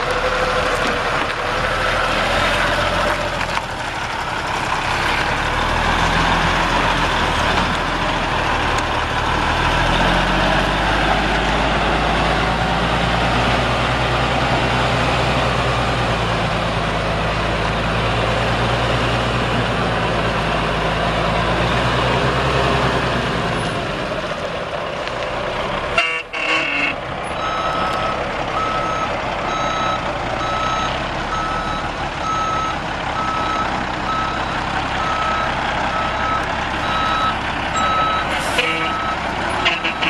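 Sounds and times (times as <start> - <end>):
diesel truck running: 0.0 - 40.0
truck backup alarm beeping: 26.0 - 40.0.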